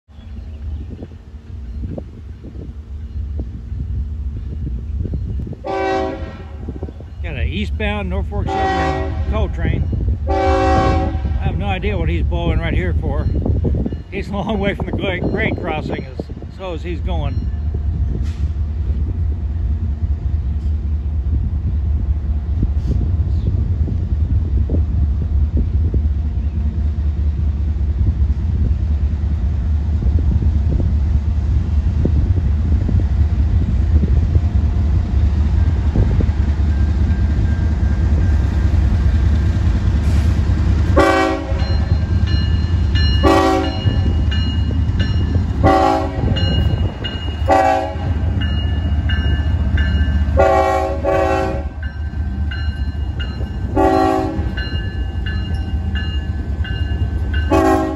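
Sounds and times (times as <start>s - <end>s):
diesel locomotives rumbling: 0.0s - 57.9s
locomotive horn short blasts: 5.6s - 6.7s, 8.5s - 9.3s, 10.3s - 11.4s, 41.0s - 41.8s, 43.2s - 44.0s, 45.6s - 46.4s, 47.5s - 48.2s, 50.4s - 51.8s, 53.8s - 54.6s, 57.5s - 57.9s.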